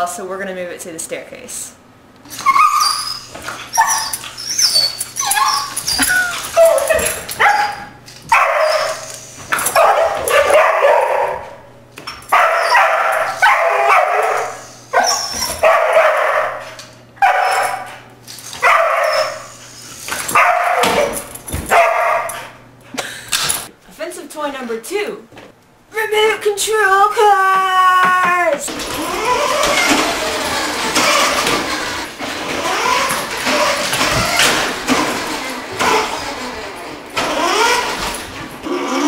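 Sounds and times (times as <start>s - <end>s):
dog barking and yelping: 2.4s - 11.7s, 12.3s - 22.6s.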